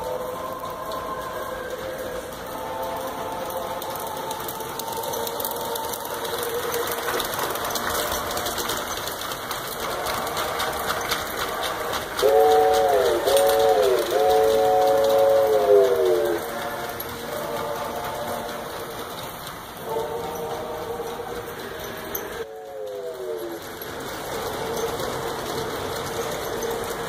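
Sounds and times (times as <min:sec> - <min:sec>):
model train clicking clatter: 0:00.0 - 0:27.0.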